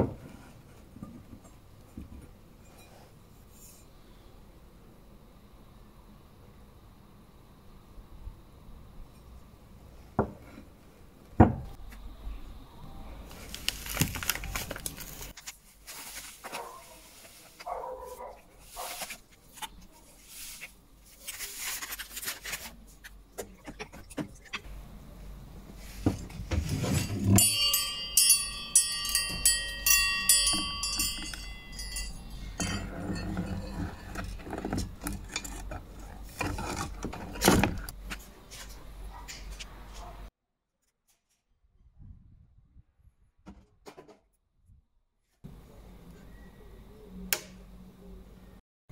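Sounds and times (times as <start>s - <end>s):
rattle: 26.6s - 37.9s.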